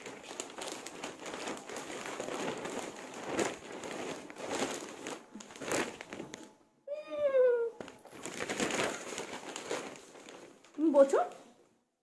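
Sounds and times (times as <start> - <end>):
plastic bag crinkling: 0.0 - 6.7, 7.8 - 11.6.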